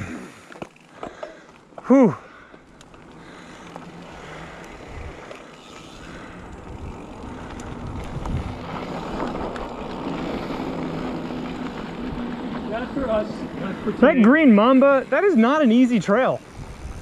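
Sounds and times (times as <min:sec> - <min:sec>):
bike tyre rumble and rattle: 0:00.0 - 0:17.0
wind rushing over microphone: 0:06.4 - 0:12.8, 0:16.4 - 0:17.0.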